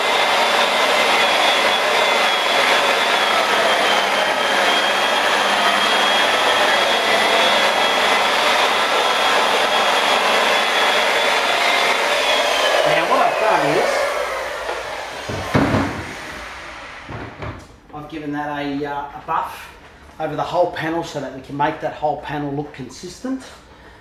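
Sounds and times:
rotary polisher running: 0.0s - 17.6s
loud thump: 15.2s - 16.4s, 17.0s - 17.6s.

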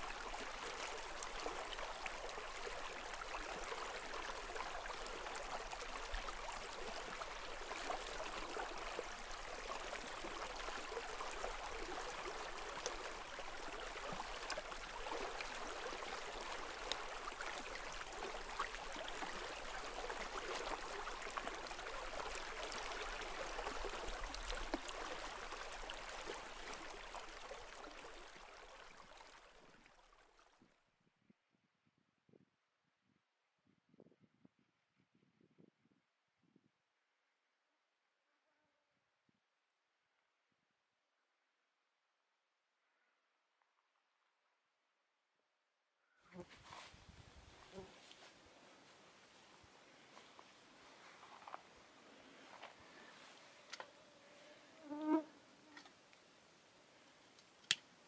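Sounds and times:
running water: 0.0s - 30.2s.

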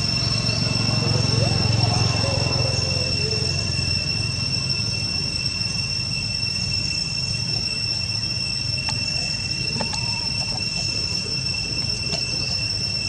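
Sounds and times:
high-pitched insect drone: 0.0s - 13.0s
low outdoor rumble: 0.0s - 13.0s.

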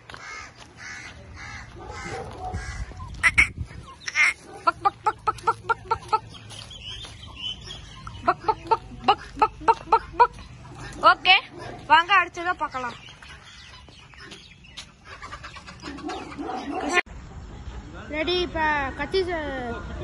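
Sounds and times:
chickens squawking: 0.1s - 17.0s
chickens short repeated calls: 13.7s - 17.0s.

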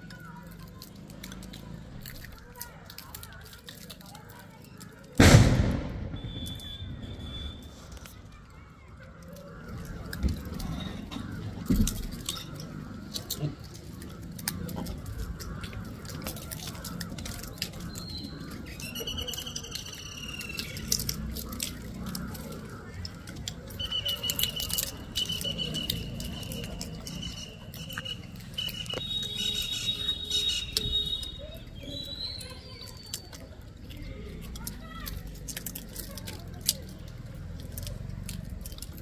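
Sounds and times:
high whistled calls: 5.9s - 8.1s, 17.5s - 21.2s, 23.7s - 33.4s.

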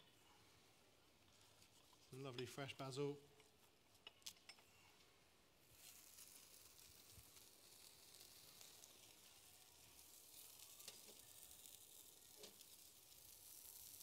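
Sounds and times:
fish sizzling on a rack: 5.6s - 14.0s.

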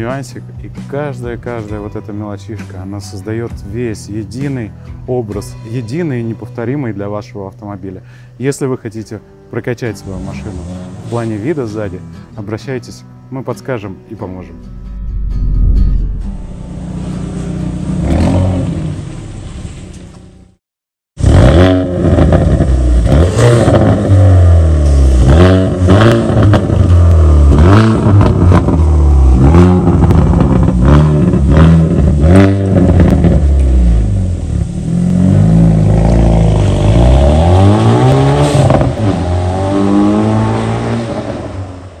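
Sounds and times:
car engine revving: 14.5s - 19.5s, 21.2s - 41.7s
exhaust cracks: 21.2s - 37.6s.

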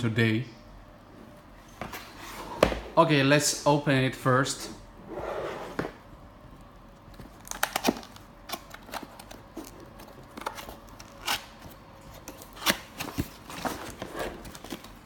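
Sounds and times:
box lid sliding scrape: 2.0s - 2.9s, 5.0s - 6.0s.

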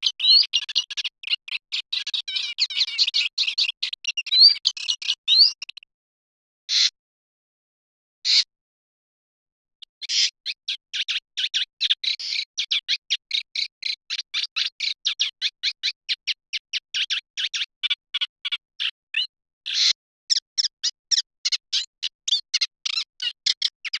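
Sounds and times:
bird singing chattering notes: 0.0s - 5.8s.

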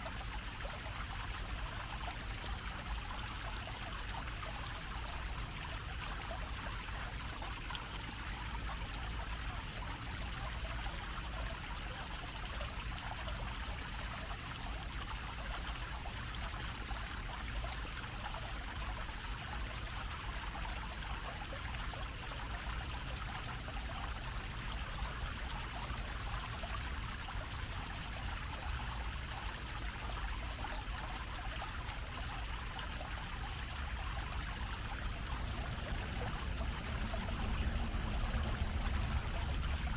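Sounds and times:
fountain splashing into basin: 0.0s - 39.9s
steady low rumble: 35.2s - 39.9s.

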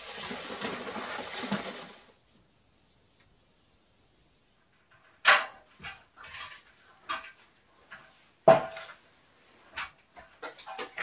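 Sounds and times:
hard knocks and clatters: 8.4s - 9.0s.

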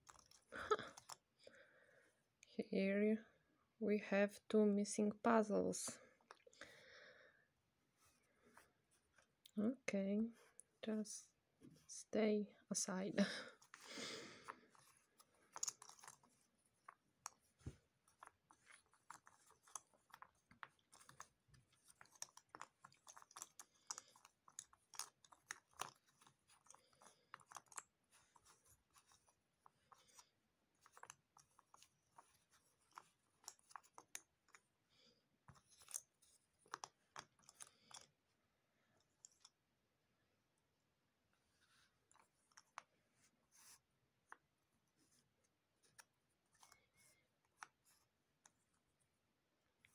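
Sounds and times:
puzzle pieces clicking and rustling: 13.6s - 30.2s, 30.8s - 34.7s, 35.5s - 38.1s.

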